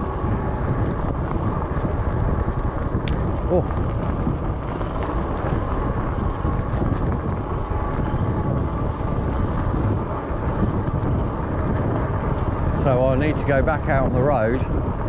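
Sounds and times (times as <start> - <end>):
bicycle tyre noise: 0.0 - 15.0
wind buffeting microphone: 0.0 - 15.0.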